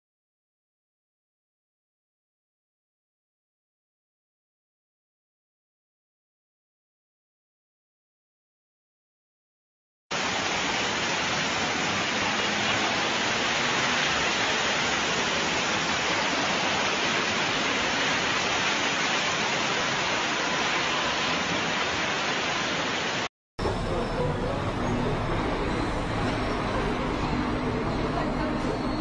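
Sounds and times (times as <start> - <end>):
floodwater rushing down street: 10.1 - 29.0.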